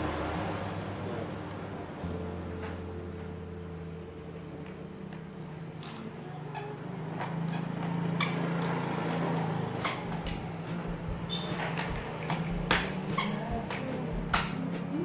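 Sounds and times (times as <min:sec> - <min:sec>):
steady low hum: 0:10.0 - 0:11.4.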